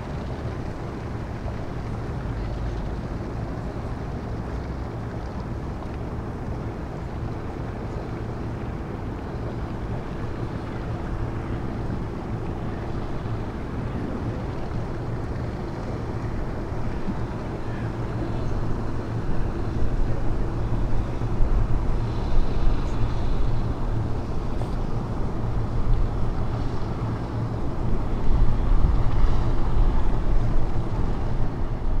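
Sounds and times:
wind rumbling on microphone: 0:00.0 - 0:32.0.

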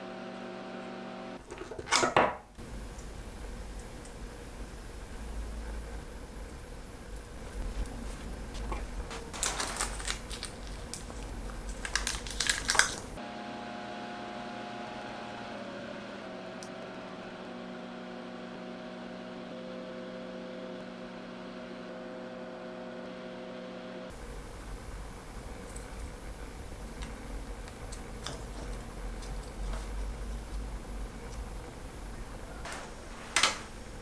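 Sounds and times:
steady hum of held tones: 0:13.2 - 0:32.7.

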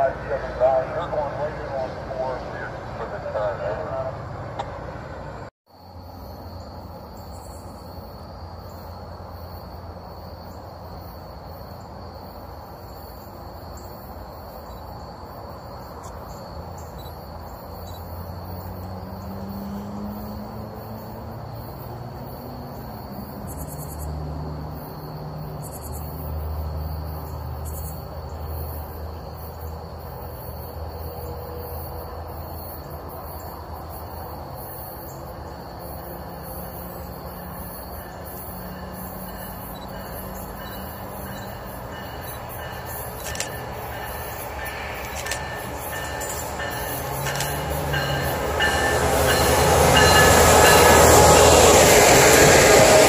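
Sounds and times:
distant engine rumble: 0:00.0 - 0:05.5
crickets chirring: 0:05.7 - 0:53.0.

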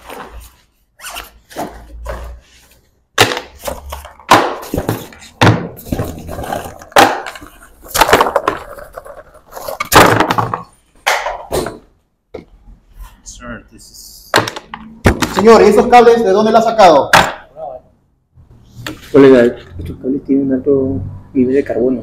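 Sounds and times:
objects clattering on wooden table: 0:03.2 - 0:12.5, 0:14.4 - 0:15.5.

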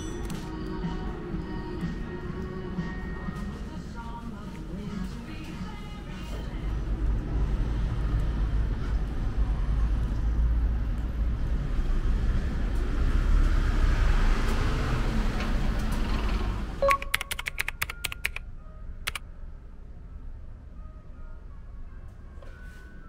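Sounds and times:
road traffic rumble: 0:00.0 - 0:16.8
vehicle passing by: 0:06.8 - 0:16.8.

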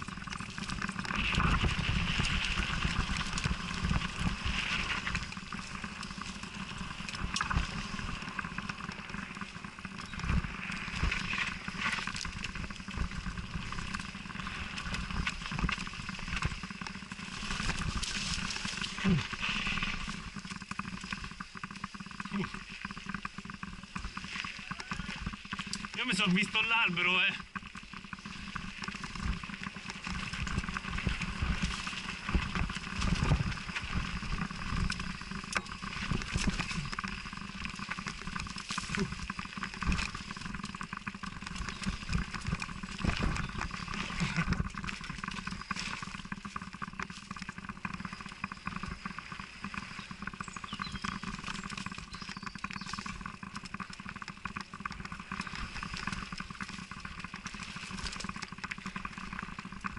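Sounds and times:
bike knocking and rattling: 0:00.0 - 0:59.9
bike tyres rushing on dirt: 0:00.0 - 0:59.9.

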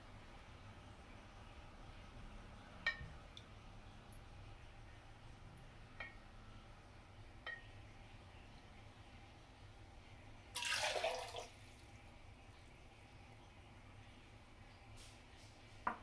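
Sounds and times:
water splashing into sink: 0:10.6 - 0:11.6.

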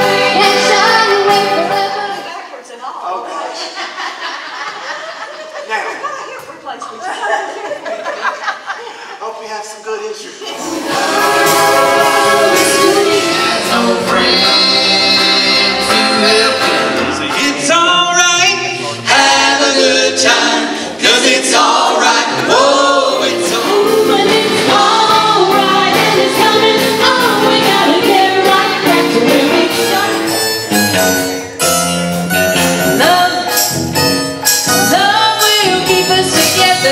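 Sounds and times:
vocal group singing in harmony: 0:00.0 - 0:02.4, 0:10.4 - 0:30.4
live band with electric guitars: 0:10.6 - 0:17.8, 0:23.3 - 0:36.9.

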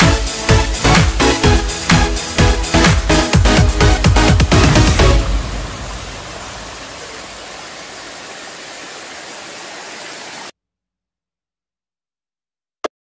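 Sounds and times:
water rushing down a cascade: 0:02.8 - 0:10.5.

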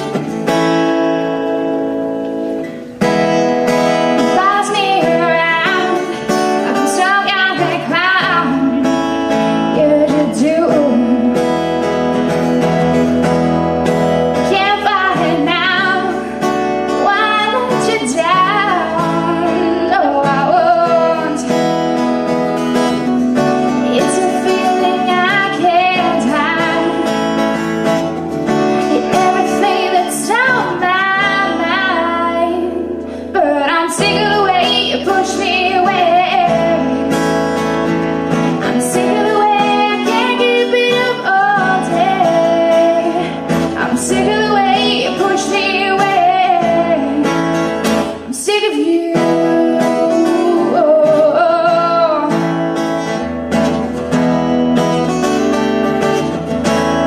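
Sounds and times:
strummed acoustic guitar: 0:00.0 - 0:57.0
woman singing: 0:03.0 - 0:53.3.

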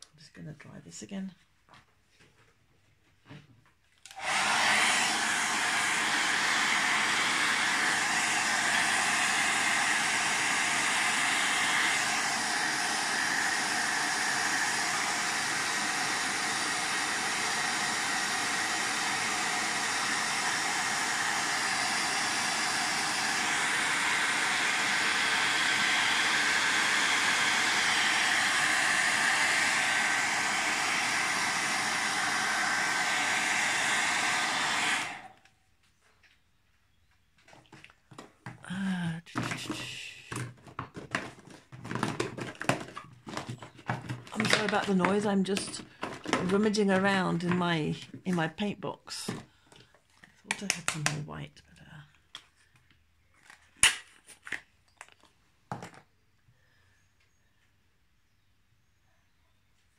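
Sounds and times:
hot-air dryer blowing: 0:04.1 - 0:35.5, 0:38.1 - 0:48.6, 0:49.3 - 0:51.2.

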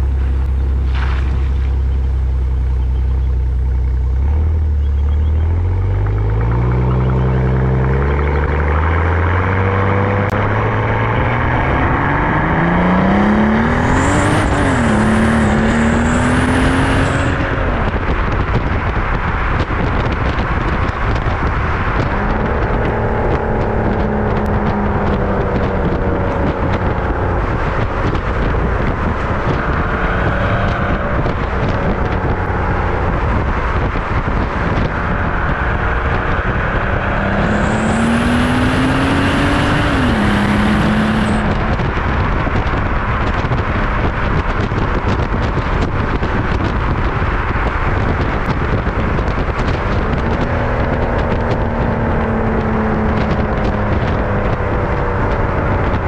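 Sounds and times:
car engine accelerating hard: 0:00.0 - 0:56.0
road and wind rush: 0:00.0 - 0:56.0.

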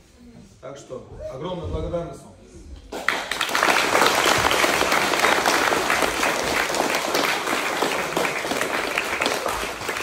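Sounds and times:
crowd applauding: 0:02.9 - 0:10.0.

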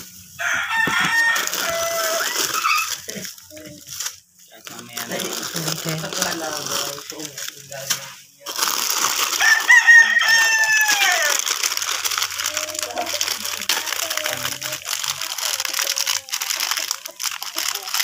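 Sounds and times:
plastic packaging crinkling: 0:00.0 - 0:18.0
rooster crowing: 0:00.4 - 0:02.9, 0:09.3 - 0:11.5.

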